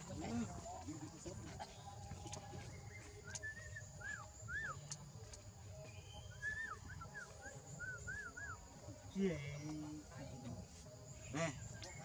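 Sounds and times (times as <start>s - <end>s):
whistled chirps: 2.6s - 5.0s, 5.9s - 8.6s.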